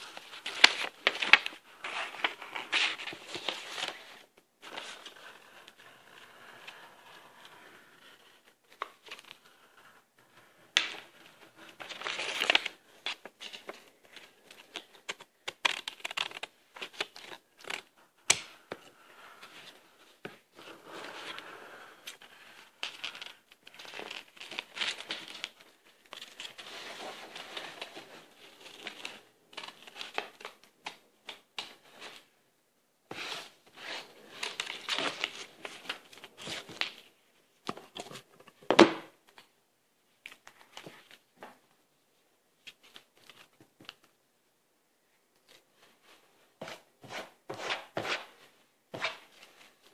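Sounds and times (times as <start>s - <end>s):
paper rustling: 33.1s - 37.1s.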